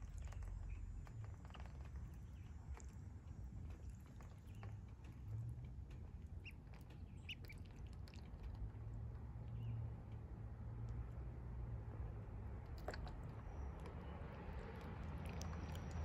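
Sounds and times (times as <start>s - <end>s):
ducklings dabbling in water: 0.0s - 16.0s
duckling peeps: 7.2s - 8.3s.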